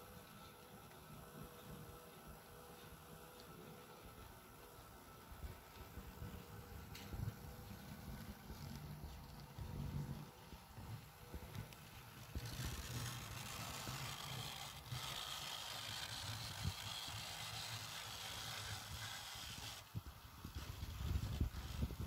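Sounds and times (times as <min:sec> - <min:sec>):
model train running on track: 0:00.0 - 0:22.0
small wheel clicks: 0:11.4 - 0:22.0.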